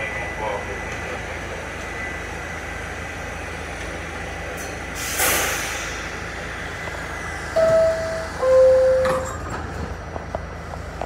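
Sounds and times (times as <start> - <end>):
subway car humming: 0.0 - 11.0
compressed air hissing: 5.0 - 6.2.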